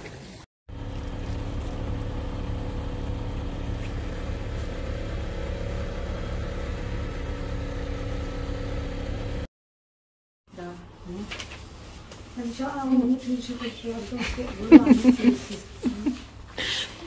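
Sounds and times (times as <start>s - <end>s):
truck engine idling: 0.7s - 9.5s.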